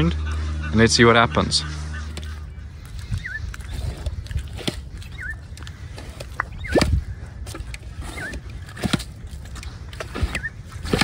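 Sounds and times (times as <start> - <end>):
low rumble: 0.0 - 11.0
bird chirping: 0.2 - 11.0
pump squelching in wet mud: 1.6 - 11.0.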